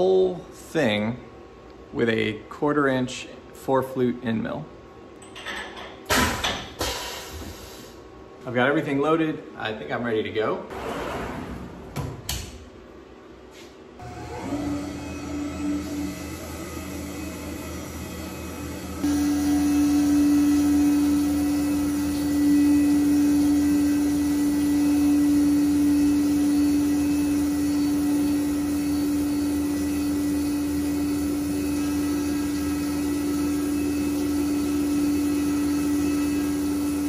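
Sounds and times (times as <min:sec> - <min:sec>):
milling machine whine: 0:14.0 - 0:37.0.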